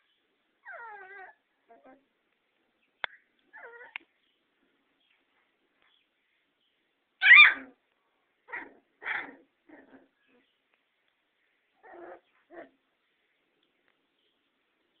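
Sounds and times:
puppies yipping and barking: 0:07.2 - 0:07.8.

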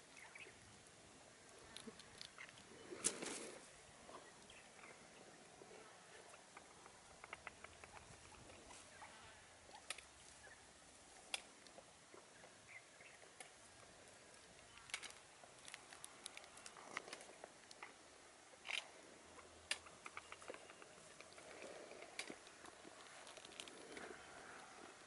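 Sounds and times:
birds pecking on wet stone: 0:01.6 - 0:03.4, 0:06.3 - 0:08.6, 0:14.3 - 0:25.0.

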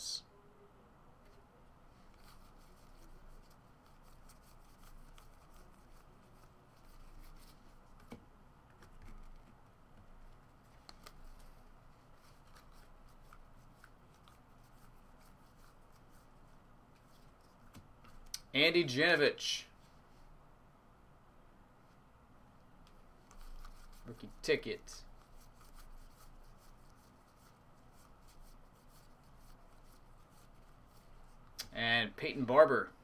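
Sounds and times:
trading cards being flipped: 0:10.7 - 0:11.6, 0:12.2 - 0:16.1.

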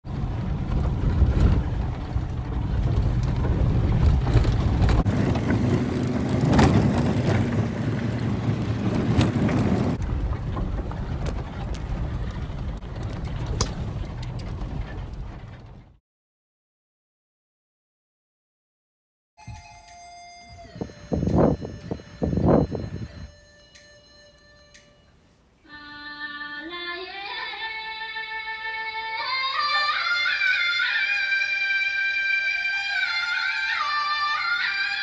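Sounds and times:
low rumble of engine and tyres: 0:00.0 - 0:16.0, 0:20.5 - 0:25.1
knocks and rattles from bumps: 0:00.1 - 0:16.0.

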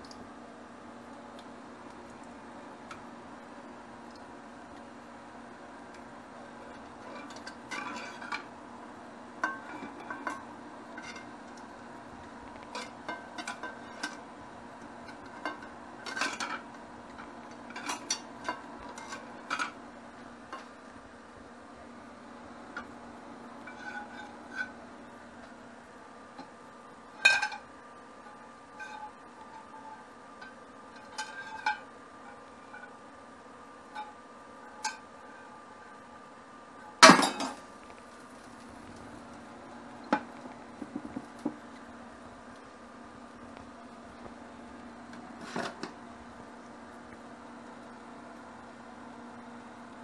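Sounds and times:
steady low hum: 0:00.0 - 0:50.0
utensils clinking on frying pan: 0:27.2 - 0:27.6.

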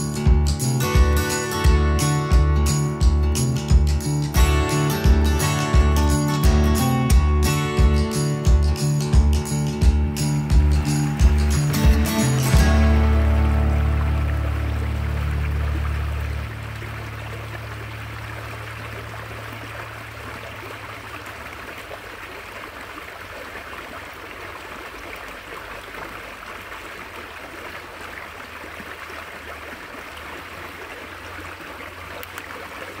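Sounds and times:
creek water splashing over stones: 0:08.3 - 0:33.0.

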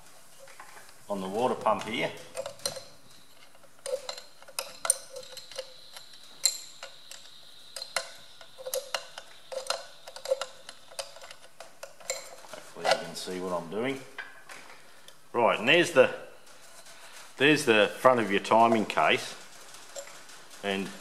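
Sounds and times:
spanner clinking on bolt: 0:03.8 - 0:13.0.

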